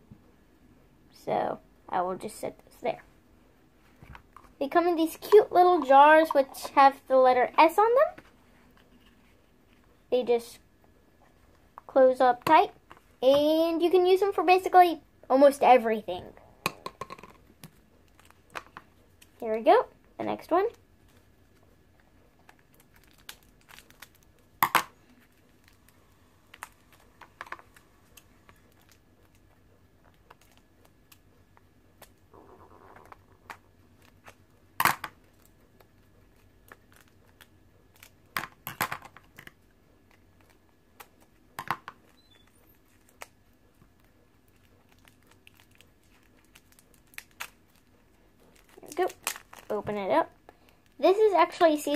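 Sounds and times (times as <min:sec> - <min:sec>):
plastic wrap crinkling: 0:22.2 - 0:31.4, 0:35.2 - 0:38.4, 0:42.7 - 0:51.7.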